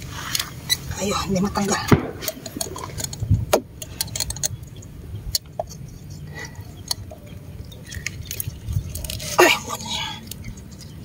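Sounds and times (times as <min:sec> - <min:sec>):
pliers clicking and scraping: 0:02.2 - 0:04.6.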